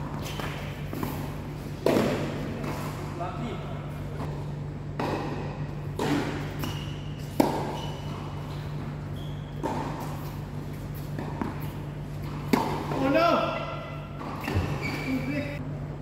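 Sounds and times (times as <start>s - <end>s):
steady low hum: 0.0s - 16.0s
tennis ball struck by rackets: 0.2s - 2.9s, 5.0s - 8.4s, 9.6s - 10.4s, 11.0s - 13.2s.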